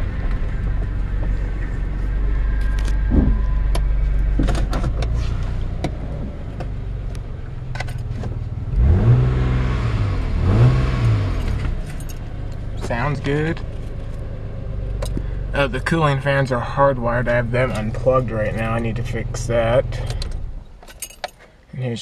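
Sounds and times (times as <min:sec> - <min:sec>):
car engine idling: 0:00.0 - 0:20.8
engine revving: 0:08.6 - 0:20.5.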